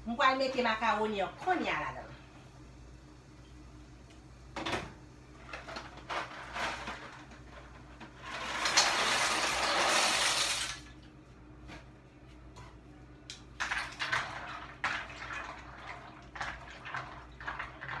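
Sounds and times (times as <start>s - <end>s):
macaroni pouring into pot: 8.2s - 10.8s.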